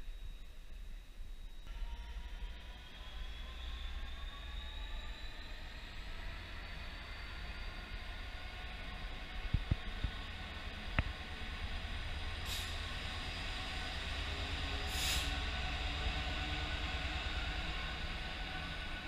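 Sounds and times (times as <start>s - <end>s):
diesel locomotive rumble: 2.2s - 19.0s
short air hisses: 12.5s - 12.8s, 14.9s - 15.4s.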